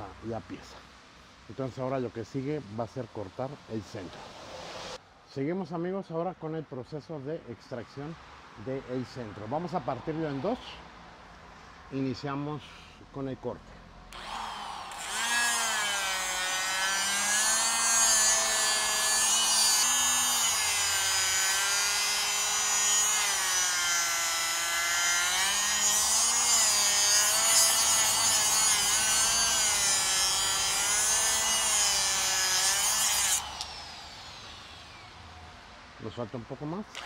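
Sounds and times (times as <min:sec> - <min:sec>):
grinder cutting steel: 0:14.1 - 0:35.4.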